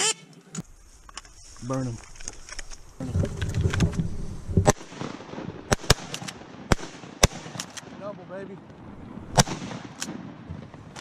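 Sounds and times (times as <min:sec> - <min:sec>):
rustling of reeds and clothing: 0:00.4 - 0:05.0
shotgun shots: 0:04.6 - 0:08.1, 0:09.3 - 0:10.3.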